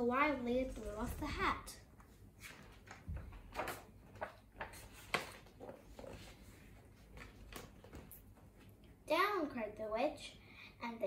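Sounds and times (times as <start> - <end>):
book page turning: 2.0 - 8.1.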